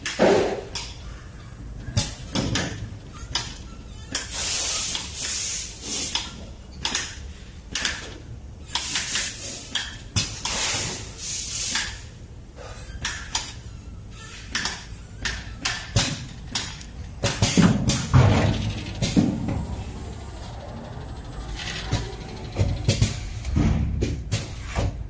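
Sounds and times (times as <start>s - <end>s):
low steady hum: 12.1s - 25.0s.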